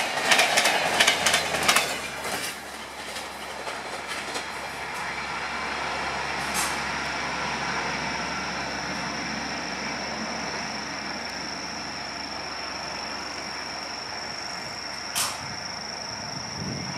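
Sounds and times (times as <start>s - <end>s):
train wheels rumbling on rails: 0.0s - 16.9s.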